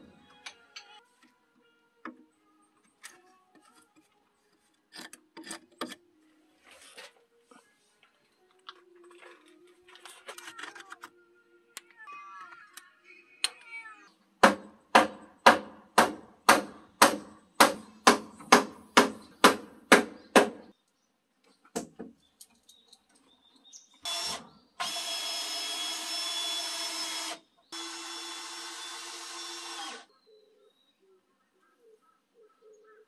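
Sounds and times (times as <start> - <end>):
hammer striking nail: 14.4 - 20.6
cordless drill driving into wood: 24.1 - 30.0.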